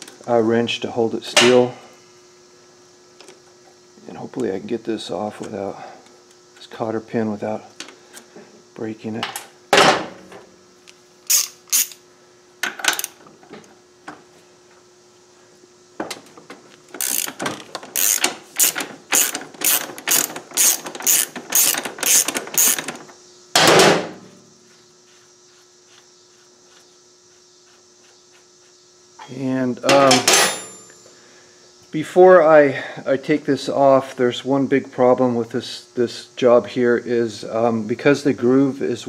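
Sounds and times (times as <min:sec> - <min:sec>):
socket ratchet clicking: 0:11.2 - 0:12.0, 0:17.0 - 0:17.4, 0:18.0 - 0:23.0.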